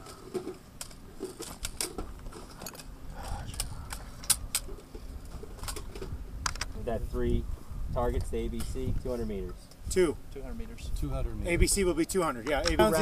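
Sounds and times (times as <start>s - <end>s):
metallic clicks of rifles: 0.0s - 6.7s
wind rumble on microphone: 3.1s - 12.0s.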